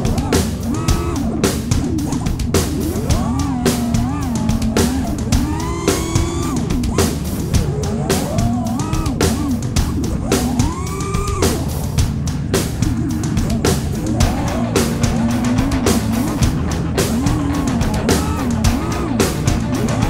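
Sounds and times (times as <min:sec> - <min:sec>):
music with drum beat and bass: 0:00.0 - 0:20.0.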